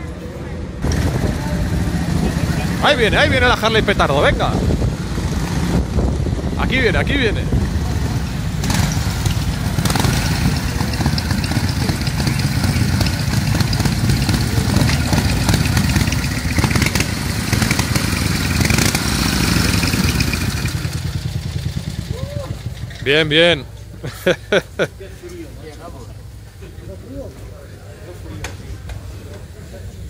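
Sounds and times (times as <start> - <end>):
motorcycle engine running: 0.8 - 24.0.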